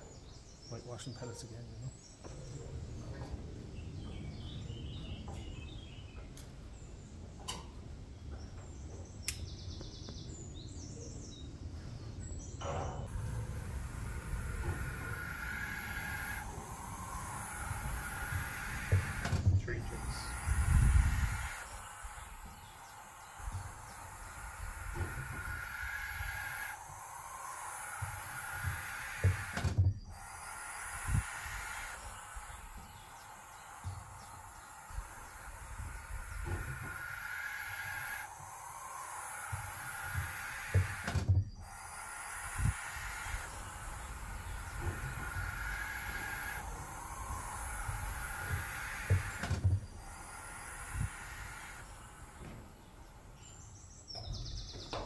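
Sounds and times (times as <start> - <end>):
owlets hissing: 12.4 - 55.0
low thumps: 12.6 - 37.3, 38.0 - 55.0.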